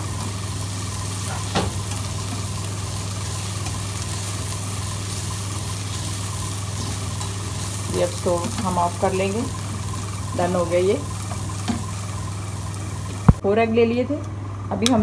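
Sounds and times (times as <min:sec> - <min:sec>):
vegetables sizzling in oil: 0:00.0 - 0:13.4
steady low hum: 0:00.0 - 0:15.0
spatula stirring and scraping: 0:01.2 - 0:10.4.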